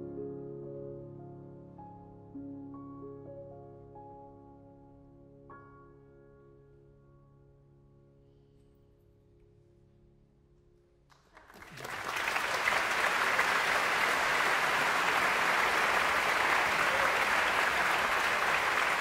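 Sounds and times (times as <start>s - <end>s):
audience applauding: 11.1s - 19.0s.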